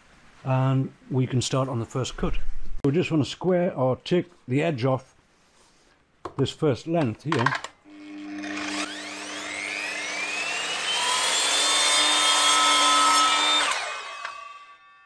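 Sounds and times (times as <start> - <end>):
mitre saw whining and cutting: 7.9 - 15.0
saw winding down: 7.9 - 15.0.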